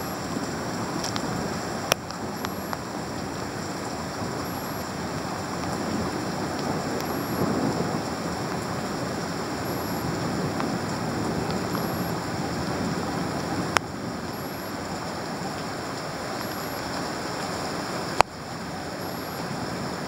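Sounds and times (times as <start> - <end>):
heavy rain pouring: 0.0 - 20.0
faint ticks: 1.0 - 1.3, 1.9 - 2.9, 16.4 - 17.0.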